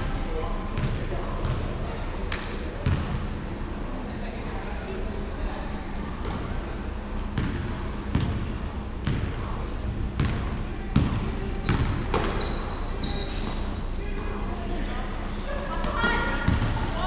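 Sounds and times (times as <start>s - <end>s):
basketball bouncing on wooden floor: 0.8s - 1.6s, 7.4s - 8.4s, 10.2s - 12.4s, 16.4s - 16.8s
sneaker squeaks: 4.8s - 6.6s, 10.2s - 13.9s.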